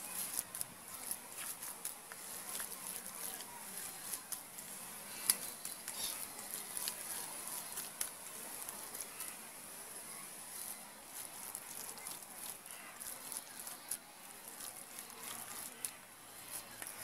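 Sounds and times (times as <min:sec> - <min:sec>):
hand squishing soft mash: 0:00.0 - 0:17.0.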